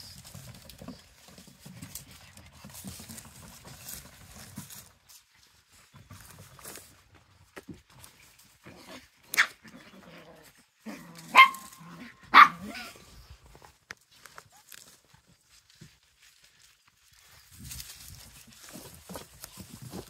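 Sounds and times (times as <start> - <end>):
small dogs yapping: 8.8 - 13.3.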